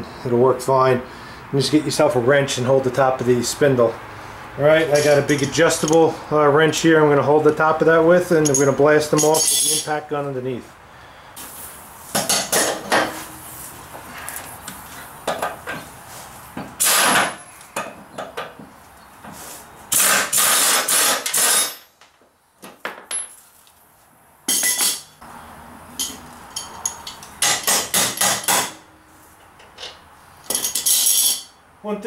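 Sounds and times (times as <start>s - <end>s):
air impact wrench hammering: 16.6s - 18.5s, 19.9s - 21.9s, 26.0s - 28.9s.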